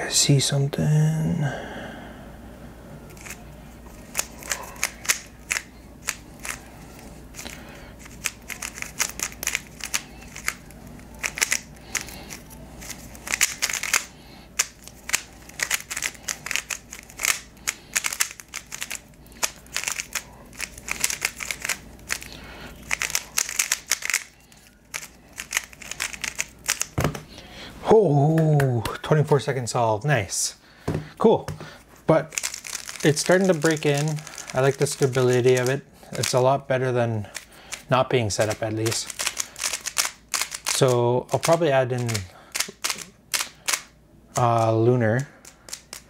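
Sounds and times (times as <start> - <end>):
plastic puzzle cube clicking: 8.1 - 10.6, 11.2 - 22.3, 22.9 - 27.0, 38.4 - 40.8, 45.4 - 46.0.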